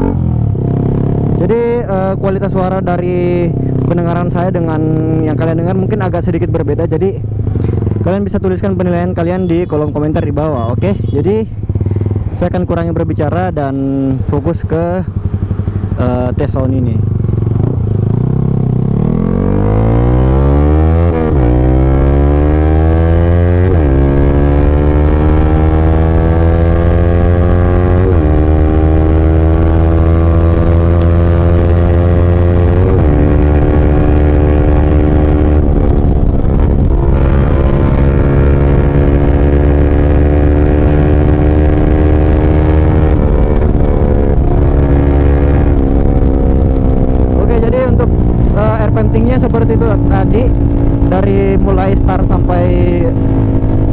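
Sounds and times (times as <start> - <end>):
motorcycle engine accelerating: 0.0 - 53.9.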